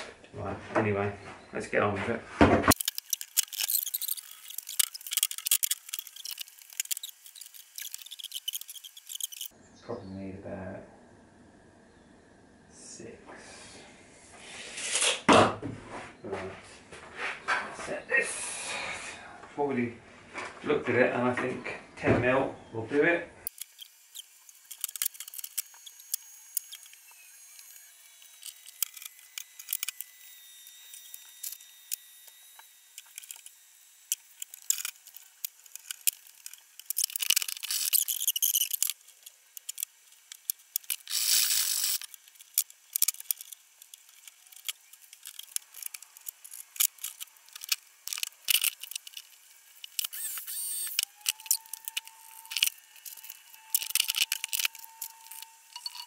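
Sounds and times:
tools and metal parts rattling: 2.7 - 9.5, 34.2 - 56.0.

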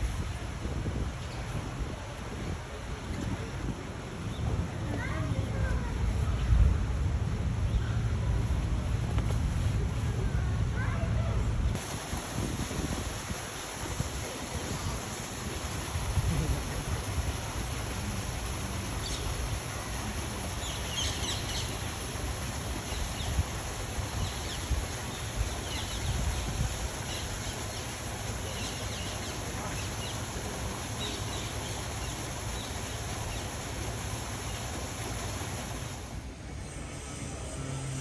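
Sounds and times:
waterfall splashing onto rocks: 11.8 - 36.2.

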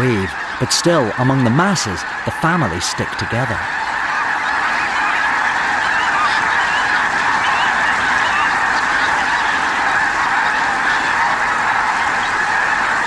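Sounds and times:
flock of geese honking: 0.0 - 13.0.

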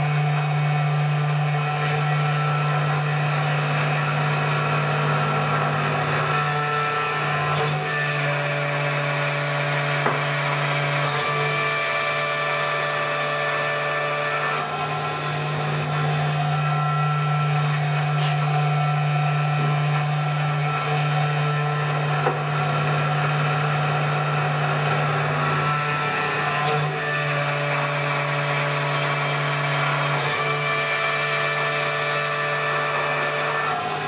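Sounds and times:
end mill cutting metal: 0.0 - 34.0
router spindle humming and whining: 0.0 - 34.0.

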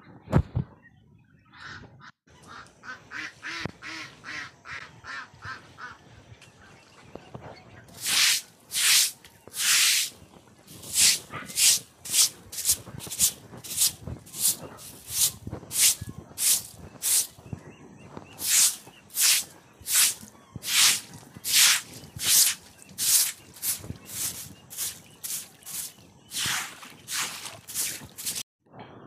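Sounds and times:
ducks quacking: 1.5 - 6.0, 18.4 - 28.4.

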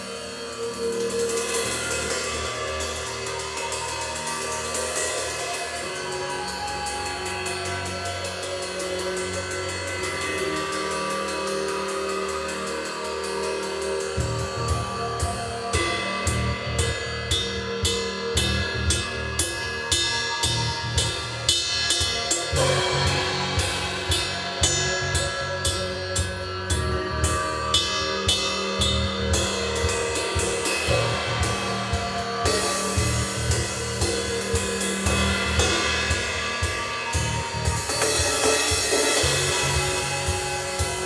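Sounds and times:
cymbal pattern: 0.0 - 41.0
sustained pitched tones: 0.0 - 41.0.

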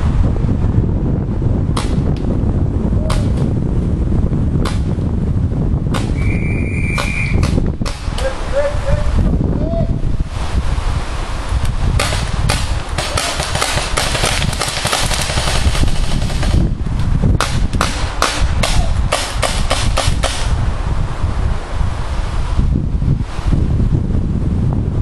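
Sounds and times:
wind rumble on microphone: 0.0 - 25.0
paintball markers firing: 3.1 - 3.5, 6.0 - 6.2, 7.0 - 8.2, 12.0 - 16.7, 17.4 - 20.5.

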